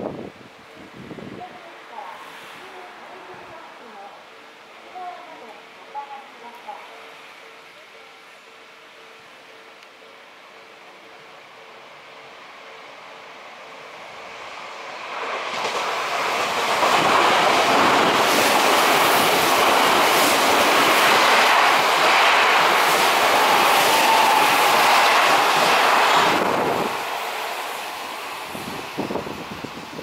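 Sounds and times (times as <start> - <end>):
train wheels rumbling on rails: 11.6 - 30.0
wheels clacking over rail joints: 15.0 - 29.4.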